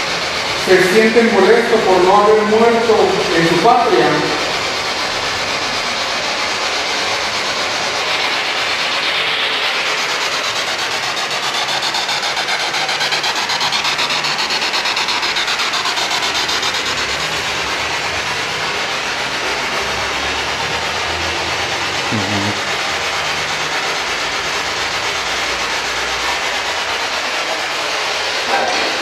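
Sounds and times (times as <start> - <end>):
fluttering radio static: 0.6 - 17.4.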